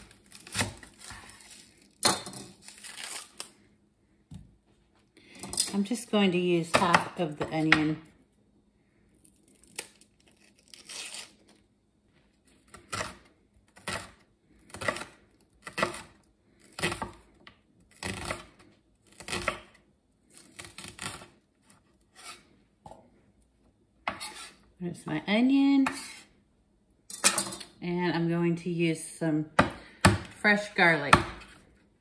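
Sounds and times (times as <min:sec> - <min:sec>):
onion skin rustling: 0:00.0 - 0:03.7, 0:09.2 - 0:12.9.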